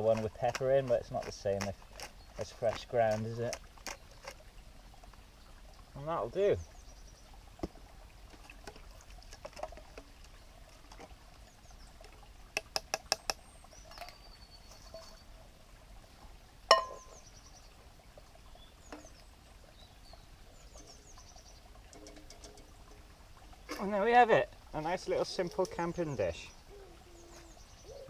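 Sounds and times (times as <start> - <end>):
ringing clink of cookware: 16.7 - 17.2.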